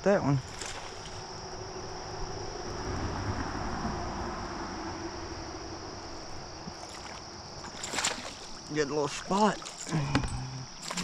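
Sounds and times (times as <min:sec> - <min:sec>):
high-pitched insect drone: 0:00.0 - 0:11.0
low rumble: 0:01.2 - 0:06.6.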